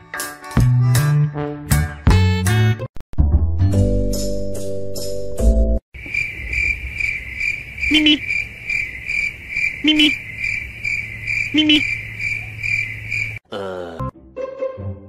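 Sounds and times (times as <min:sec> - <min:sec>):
cricket chirping: 0:06.0 - 0:13.4.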